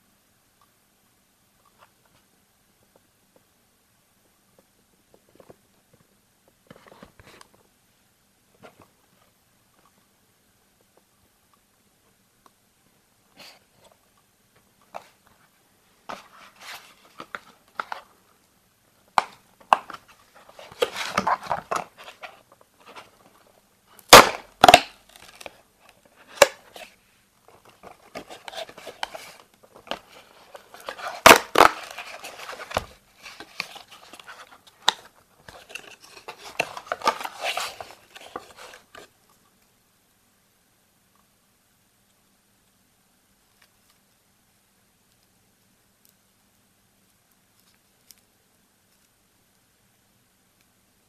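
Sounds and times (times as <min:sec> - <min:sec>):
cardboard rustling and clicks: 0:27.5 - 0:39.1
cardboard box snapping open: 0:30.9 - 0:32.9.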